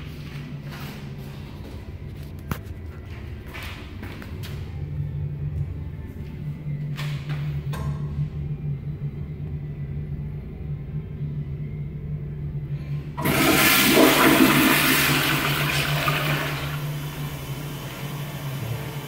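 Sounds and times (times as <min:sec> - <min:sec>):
steady low hum: 0:00.0 - 0:19.0
toilet flushing whoosh: 0:13.1 - 0:19.0.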